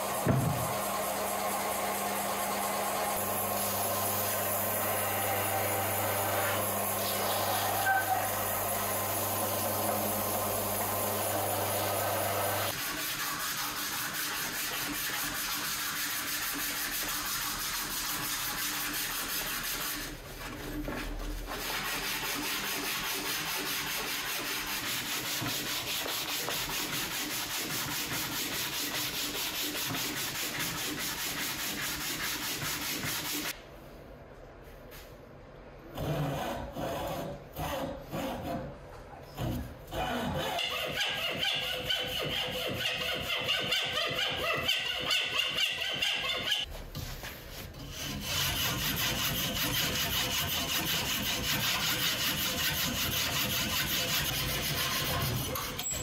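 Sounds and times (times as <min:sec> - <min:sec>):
sandpaper rasping on wood: 0:12.6 - 0:33.6, 0:40.0 - 0:55.9.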